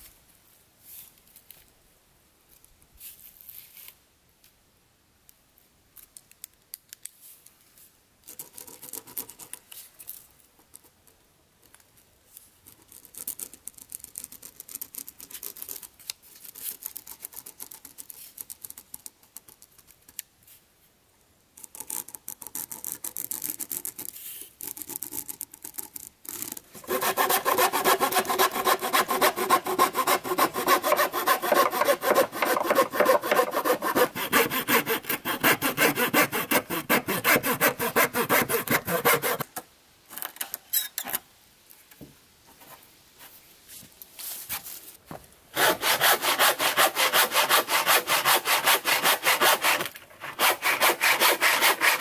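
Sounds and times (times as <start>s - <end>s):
hand saw cutting wood: 26.7s - 39.5s, 45.5s - 52.0s
pen scratching on wood: 26.8s - 39.4s.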